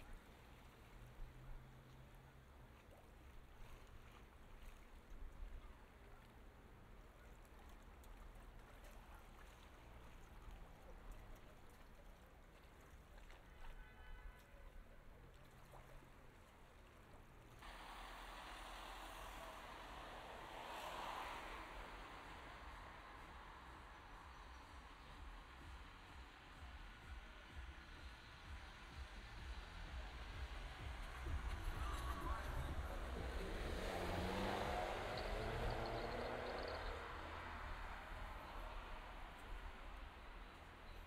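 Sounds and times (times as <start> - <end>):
low street rumble: 0.0 - 41.0
steady hiss: 17.6 - 31.9.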